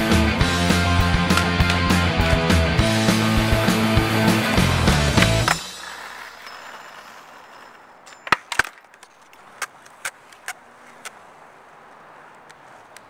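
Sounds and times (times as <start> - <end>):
skateboard clacks and knocks: 0.8 - 2.3, 3.3 - 11.2
skateboard smacking on concrete: 0.8 - 2.3, 3.3 - 11.3.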